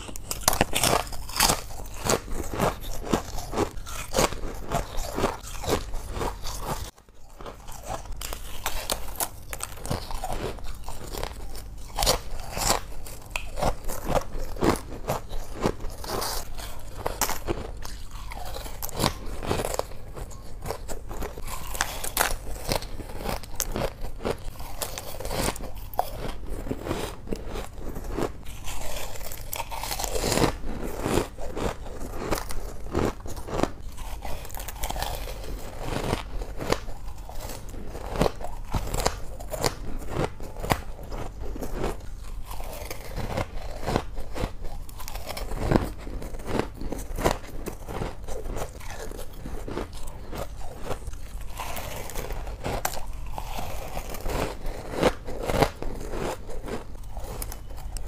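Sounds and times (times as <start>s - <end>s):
ice crunching being chewed: 0.0s - 58.0s.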